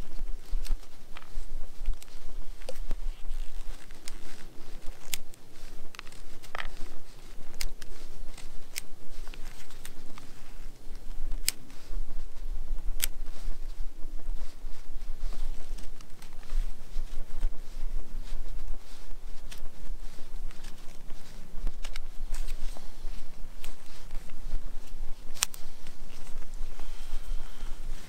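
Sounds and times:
knife carving wood: 1.9s - 5.3s.

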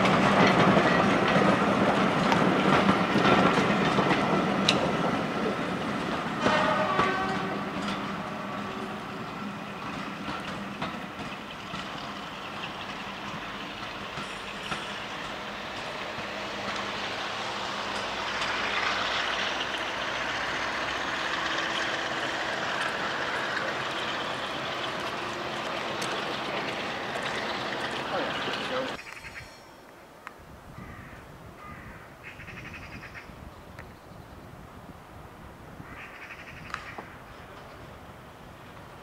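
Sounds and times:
wheels clicking over rail joints: 0.0s - 29.6s
train wheels rumbling: 0.0s - 30.0s, 31.6s - 39.0s.

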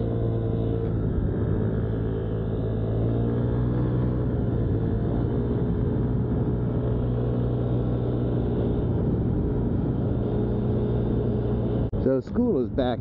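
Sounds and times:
scooter engine running: 0.0s - 12.5s.

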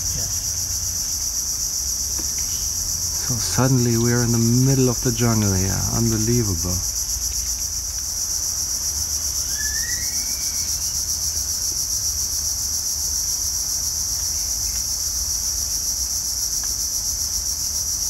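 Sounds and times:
insect chorus pulsing drone: 0.0s - 18.0s
faint bird call: 9.5s - 10.8s.

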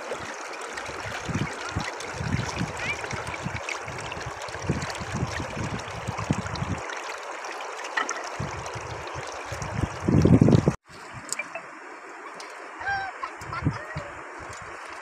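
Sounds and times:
river flowing over stones: 0.0s - 5.9s, 6.5s - 10.0s.

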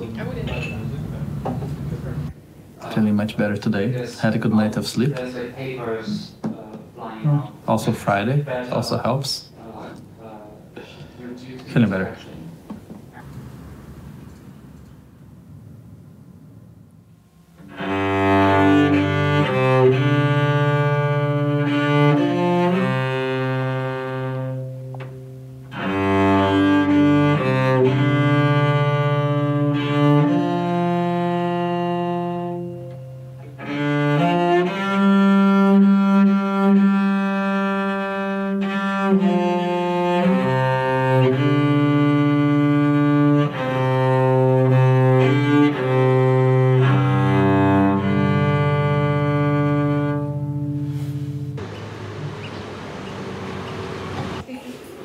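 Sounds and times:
cello slow bowed melody: 17.5s - 54.5s.

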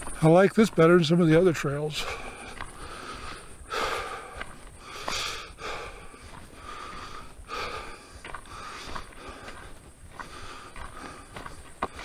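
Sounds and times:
faint ticks: 2.0s - 5.2s
person breathing: 2.0s - 12.0s.

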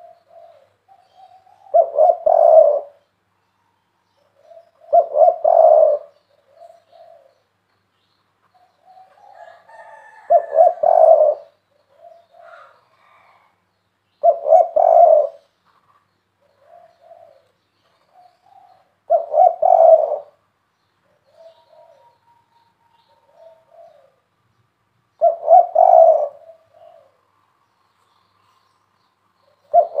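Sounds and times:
dove cooing loudly: 0.0s - 3.0s, 4.4s - 7.4s, 8.8s - 13.4s, 14.2s - 15.5s, 16.4s - 17.5s, 18.1s - 20.4s, 21.1s - 24.2s, 25.2s - 27.2s, 29.7s - 30.0s.

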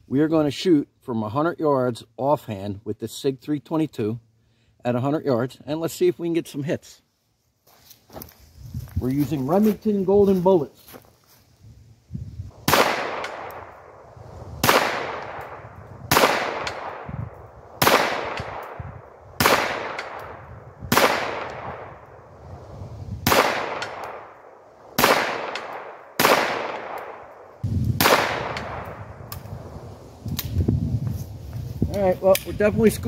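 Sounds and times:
pistol shots: 12.6s - 13.7s, 14.6s - 17.1s, 17.8s - 18.8s, 19.4s - 21.9s, 23.2s - 24.3s, 25.0s - 27.2s, 28.0s - 29.0s.

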